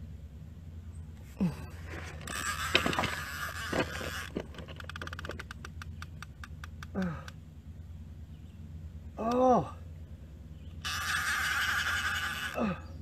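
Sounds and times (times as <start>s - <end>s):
fishing reel clicking rapidly: 2.2s - 5.5s, 10.8s - 12.7s.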